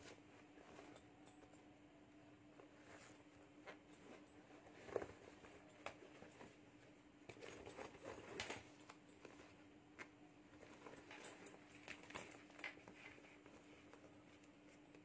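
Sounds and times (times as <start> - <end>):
handbag rustling and crinkling: 2.7 - 9.7, 10.5 - 15.0.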